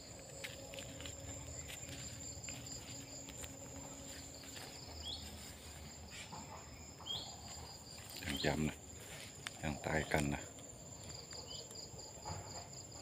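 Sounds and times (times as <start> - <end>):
faint scuffing: 0.0 - 9.8
insects droning: 0.0 - 13.0.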